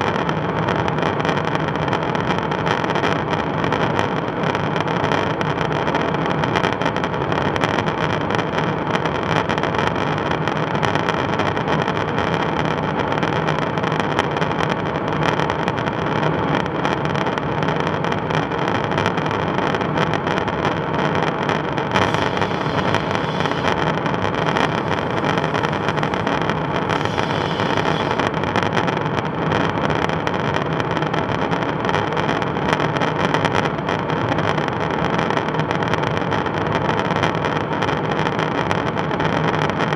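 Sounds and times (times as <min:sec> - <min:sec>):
jet engine drone: 0:21.2 - 0:29.9
rushing airstream: 0:22.0 - 0:28.5
high hiss: 0:22.0 - 0:28.7.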